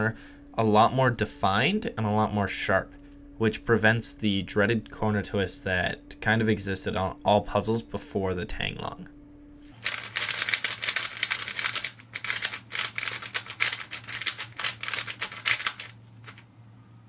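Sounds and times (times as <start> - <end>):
puzzle cube turning clicks: 9.8 - 16.4.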